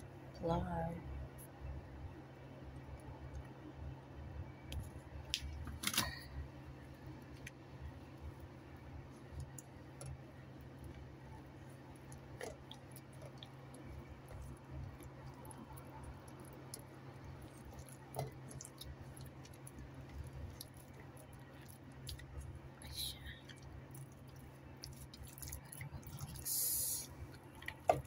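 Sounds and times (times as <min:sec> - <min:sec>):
wet squishing of raw chicken: 0:11.8 - 0:22.8, 0:23.4 - 0:28.0.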